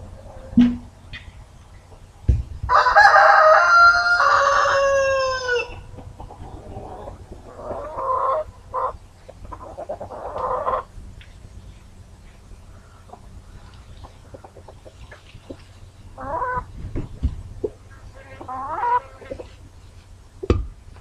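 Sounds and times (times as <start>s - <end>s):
rooster crowing: 2.7s - 5.9s
rough clucking calls: 3.0s - 19.9s.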